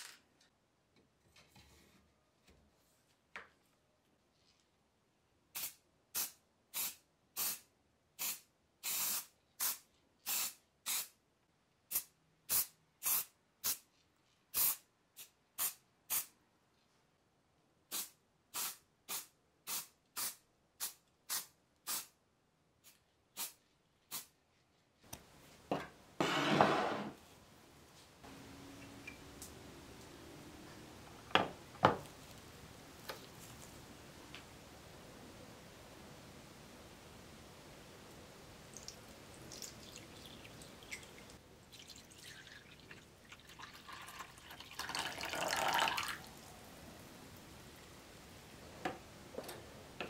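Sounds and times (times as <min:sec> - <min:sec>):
spray paint can hissing: 0:05.6 - 0:11.2, 0:11.9 - 0:13.8, 0:14.5 - 0:16.3, 0:17.9 - 0:22.1, 0:22.8 - 0:24.3.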